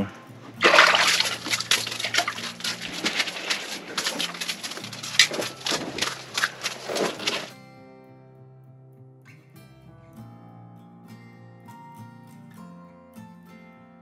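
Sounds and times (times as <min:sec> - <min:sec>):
fish flopping on ice: 0:00.6 - 0:07.5.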